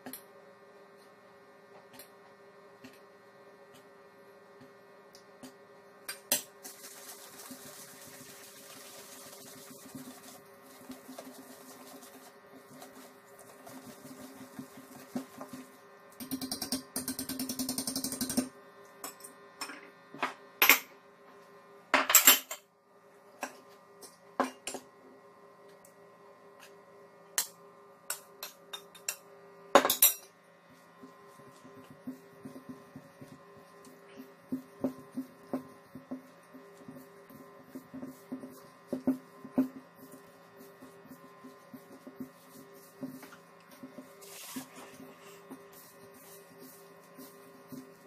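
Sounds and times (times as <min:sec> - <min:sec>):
whisk stirring in steel bowl: 0:06.4 - 0:18.4, 0:30.6 - 0:48.0.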